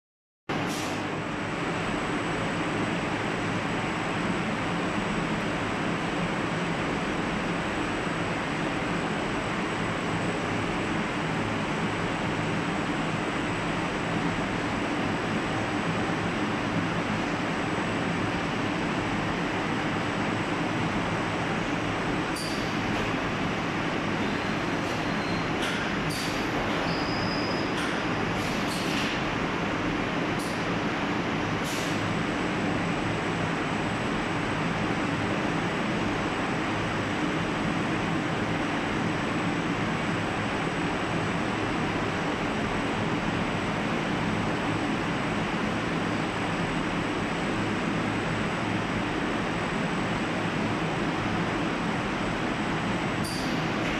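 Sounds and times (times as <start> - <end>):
conveyor airy hiss: 28.0 - 53.9.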